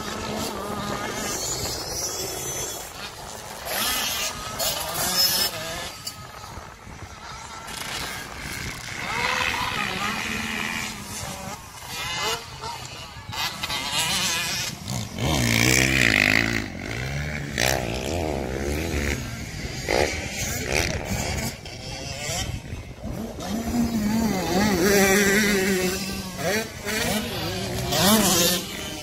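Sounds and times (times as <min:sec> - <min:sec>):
dirt bike engines revving: 0:00.0 - 0:29.0.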